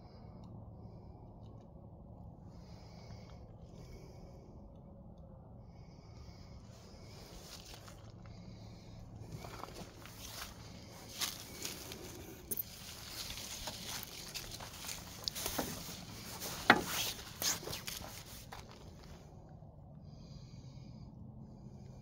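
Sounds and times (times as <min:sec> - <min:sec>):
faint low hum: 0:00.0 - 0:22.0
footsteps on gravel and leaves: 0:07.1 - 0:19.2.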